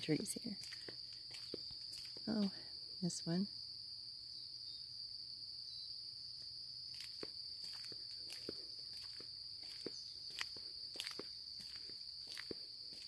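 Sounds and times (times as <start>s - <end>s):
insect chorus trilling: 0.0s - 13.0s
footsteps crunching on path: 0.3s - 2.4s, 6.9s - 13.0s.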